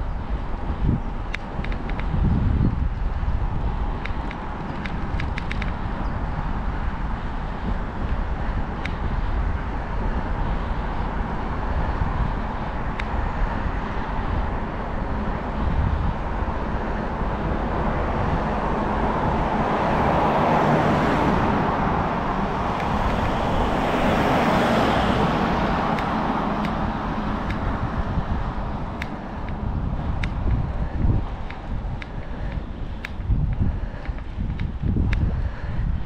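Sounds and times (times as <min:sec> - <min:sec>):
low buffeting rumble: 0:00.0 - 0:36.0
wind and road noise: 0:00.0 - 0:36.0
faint ticks: 0:31.4 - 0:35.2.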